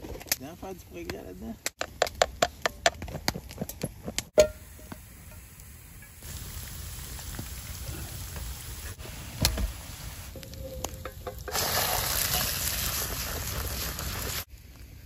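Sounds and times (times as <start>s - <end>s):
sauce sizzling in hot pan: 4.6s - 10.4s, 11.2s - 14.5s
chicken sizzling in a frying pan: 5.4s - 14.5s
sharp crackles: 5.6s - 15.0s.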